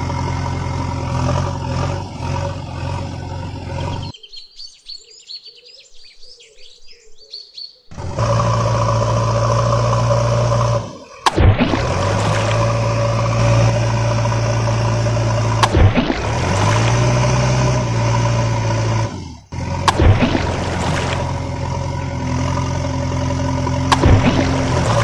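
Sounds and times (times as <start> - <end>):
heavy truck engine idling: 0.0 - 4.1, 7.9 - 25.0
water splashing: 9.1 - 25.0.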